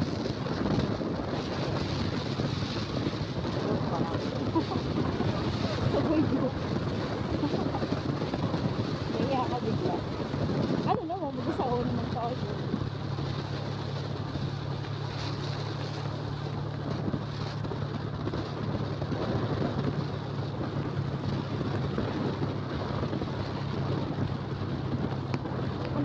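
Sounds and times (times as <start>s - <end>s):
motorcycle engine humming: 0.0s - 26.0s
wind rushing over microphone: 0.0s - 26.0s.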